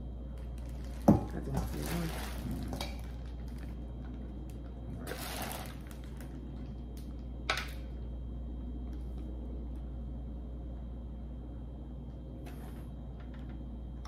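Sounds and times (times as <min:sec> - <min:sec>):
steady low hum: 0:00.0 - 0:14.0
plastic bags crinkling: 0:00.3 - 0:06.8.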